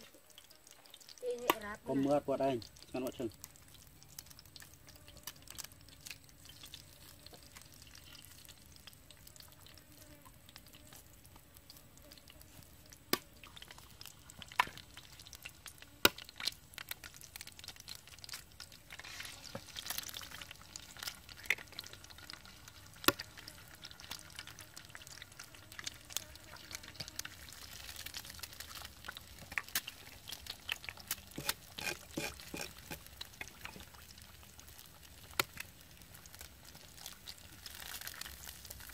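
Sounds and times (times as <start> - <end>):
eggs sizzling in a pan: 0.0 - 38.9
eggs cracking on pan rim: 13.0 - 38.9.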